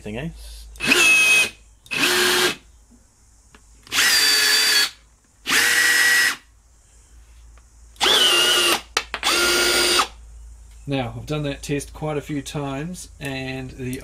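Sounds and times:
rivet gun motor whirring: 0.8s - 2.6s, 3.9s - 6.4s, 8.0s - 10.1s.

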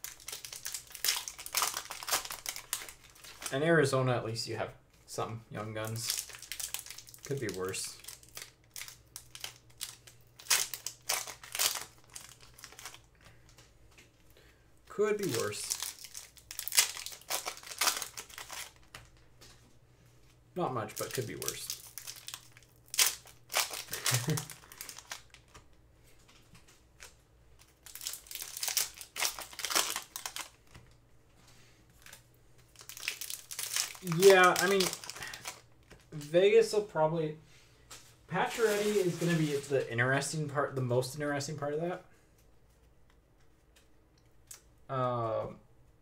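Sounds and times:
foil wrapper crinkling: 0.0s - 3.6s, 5.6s - 13.6s, 15.0s - 19.2s, 20.8s - 25.8s, 26.5s - 30.8s, 32.0s - 36.3s, 38.3s - 40.3s.

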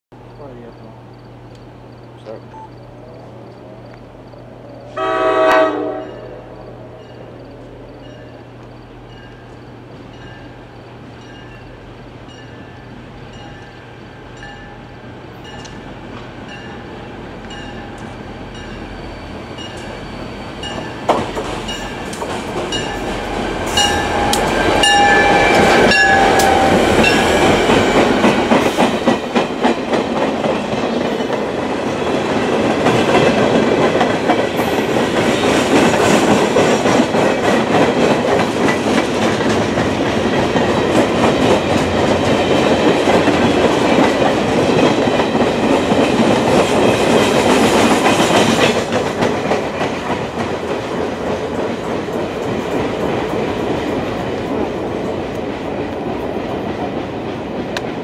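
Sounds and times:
diesel locomotives passing: 0.2s - 58.0s
train wheels clickety-clack: 19.5s - 58.0s.

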